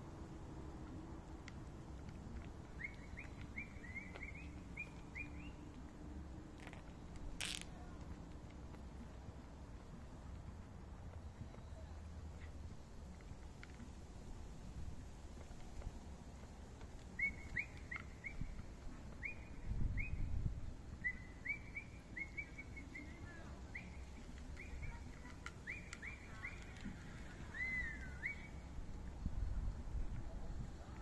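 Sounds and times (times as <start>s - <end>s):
small bird chirping: 2.8s - 5.8s, 17.1s - 20.4s.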